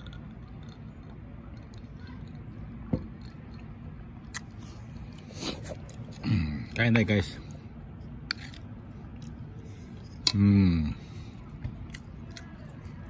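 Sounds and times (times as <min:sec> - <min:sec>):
person chewing food: 0:00.0 - 0:06.7, 0:07.4 - 0:13.0.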